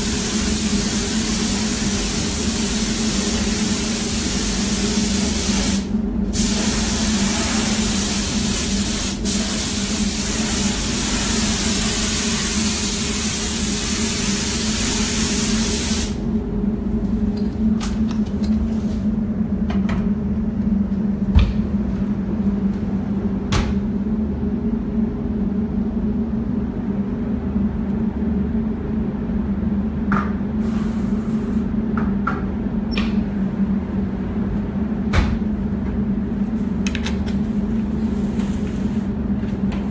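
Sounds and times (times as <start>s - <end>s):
spray gun hissing: 0.0s - 16.2s
steady low hum: 0.0s - 39.9s.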